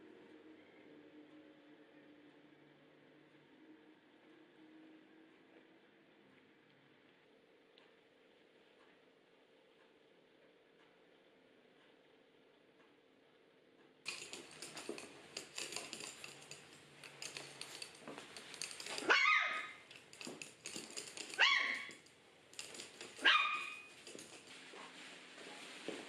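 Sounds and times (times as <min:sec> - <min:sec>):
small clicks and rustling: 0:14.0 - 0:26.0
small dog barking: 0:19.0 - 0:19.8, 0:21.3 - 0:21.9, 0:23.2 - 0:23.9.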